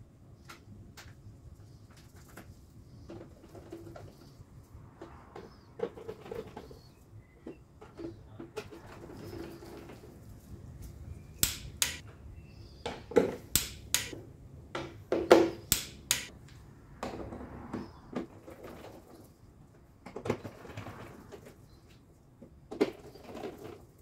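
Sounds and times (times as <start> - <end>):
screwdriver clicking: 11.4 - 12.0, 13.6 - 14.1, 15.7 - 16.3.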